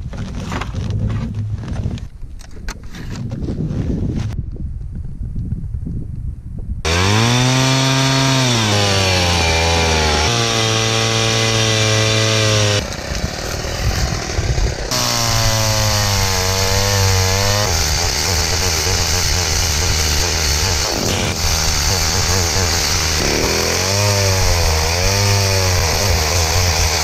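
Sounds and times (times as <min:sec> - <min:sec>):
chainsaw cutting wood: 0:06.9 - 0:27.0.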